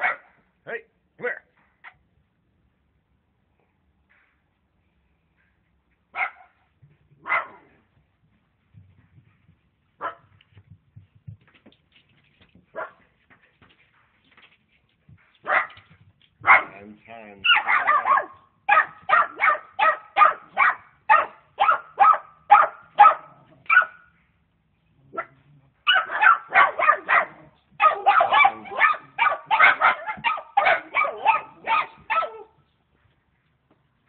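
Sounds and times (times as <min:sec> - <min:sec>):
dogs barking: 0:00.0 - 0:00.3, 0:06.2 - 0:06.6, 0:07.2 - 0:07.7, 0:15.4 - 0:15.8, 0:16.4 - 0:16.8, 0:17.4 - 0:24.1, 0:25.1 - 0:32.6.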